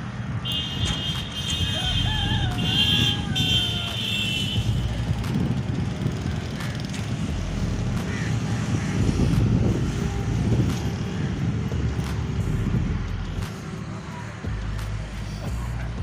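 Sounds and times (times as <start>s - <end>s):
low rumble: 8.8s - 13.5s.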